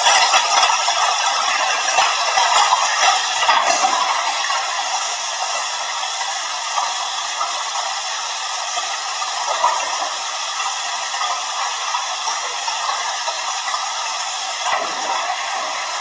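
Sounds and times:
water splashing into pool: 0.0s - 5.6s, 14.5s - 16.0s.

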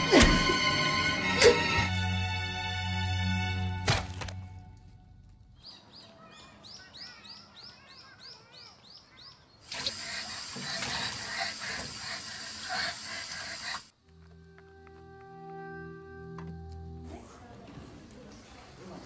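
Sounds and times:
bird chirping: 5.6s - 9.7s.

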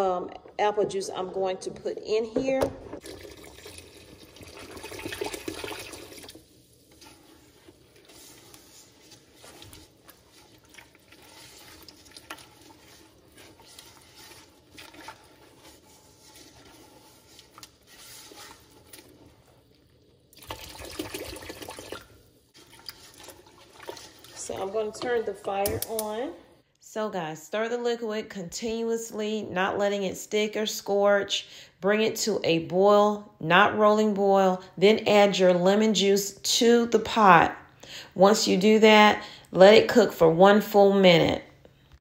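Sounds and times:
juice pouring into a pot: 3.0s - 24.8s
spatula scraping a pot: 6.2s - 19.9s, 22.5s - 25.9s.

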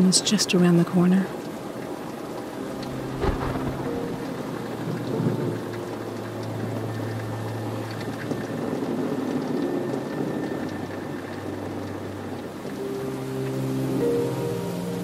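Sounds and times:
rain falling on a car: 0.0s - 15.0s
brief rumble: 3.1s - 4.3s.

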